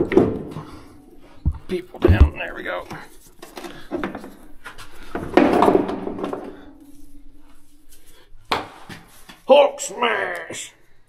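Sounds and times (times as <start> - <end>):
metal clanks and knocks: 1.5 - 2.5.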